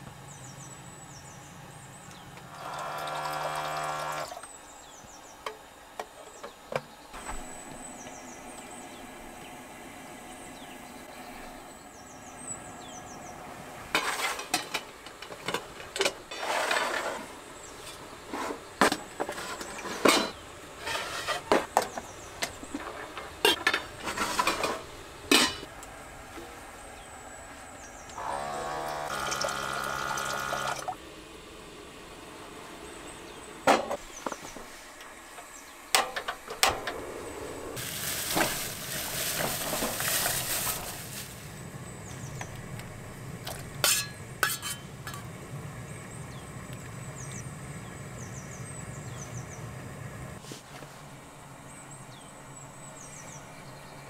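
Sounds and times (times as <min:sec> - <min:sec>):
metal pots and lids clinking: 0:18.9 - 0:21.9, 0:22.8 - 0:25.7, 0:43.8 - 0:45.3.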